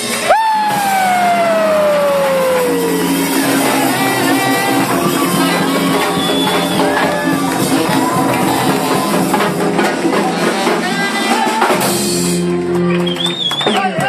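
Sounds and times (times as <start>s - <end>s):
salsa band playing: 0.0s - 14.0s
saxophone melody: 0.4s - 9.3s.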